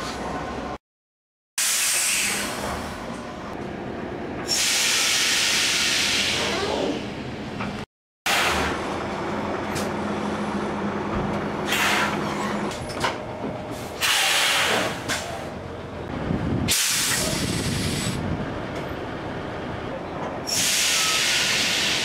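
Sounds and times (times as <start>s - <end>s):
air brakes hissing: 1.6s - 2.9s, 4.5s - 6.8s, 13.7s - 15.4s, 16.7s - 18.2s, 20.5s - 22.0s.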